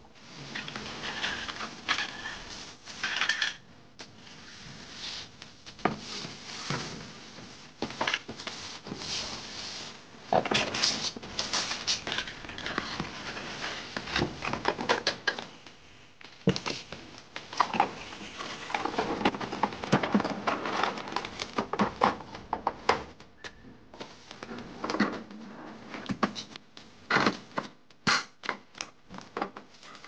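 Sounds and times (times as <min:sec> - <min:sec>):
packaging rustling and scraping: 0:00.4 - 0:03.6, 0:04.3 - 0:15.2, 0:16.4 - 0:22.2.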